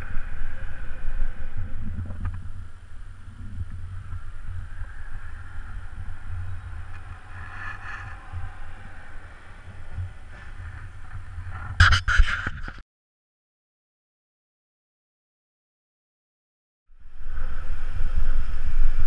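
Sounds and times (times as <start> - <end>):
traffic hiss: 0.0 - 11.6
wind rumbling on microphone: 0.0 - 12.8, 16.9 - 19.0.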